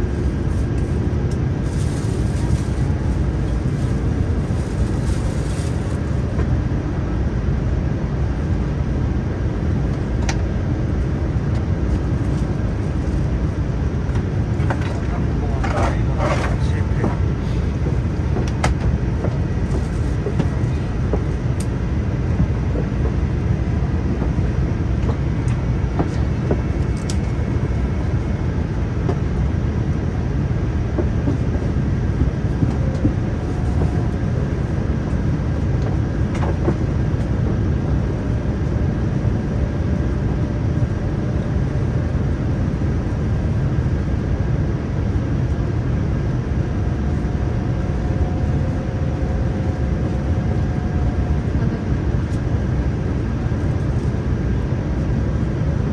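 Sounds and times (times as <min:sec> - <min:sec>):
airliner cabin rumble: 0:00.0 - 0:55.9.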